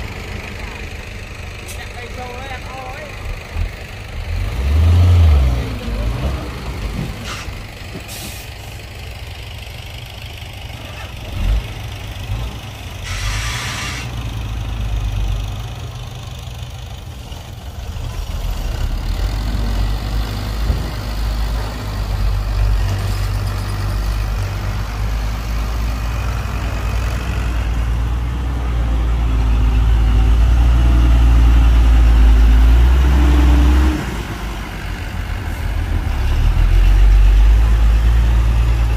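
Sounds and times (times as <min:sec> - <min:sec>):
heavy diesel machinery engine: 0:00.0 - 0:38.9
short hiss: 0:07.2 - 0:08.6, 0:13.0 - 0:14.2.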